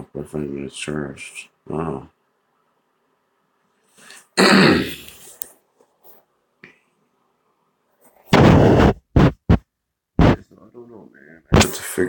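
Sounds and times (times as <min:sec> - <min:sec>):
person clearing throat: 0:04.4 - 0:05.2.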